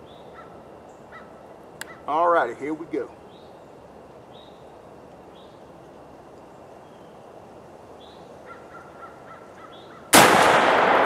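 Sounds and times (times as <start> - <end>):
shotgun shot echoing: 10.1 - 11.0.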